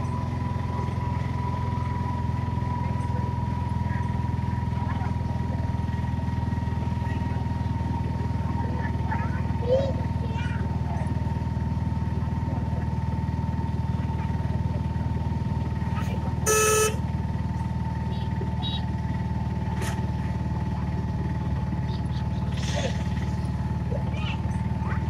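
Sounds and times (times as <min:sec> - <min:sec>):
vehicle driving on highway: 0:00.0 - 0:25.0
car horn honk: 0:16.4 - 0:17.0.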